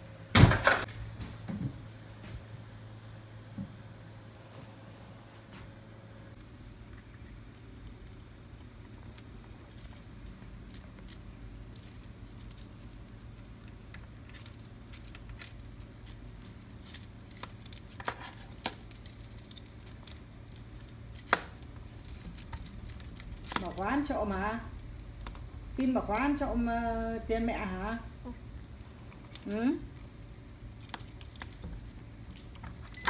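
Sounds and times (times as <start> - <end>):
metal keys jangling in a keyhole: 8.8 - 26.4, 28.7 - 33.0.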